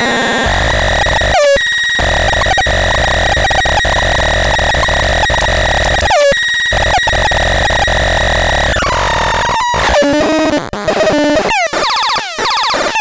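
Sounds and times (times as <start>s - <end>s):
synthesizer high-pitched tone: 0.4s - 9.0s
gritty crackly noise: 0.4s - 10.5s.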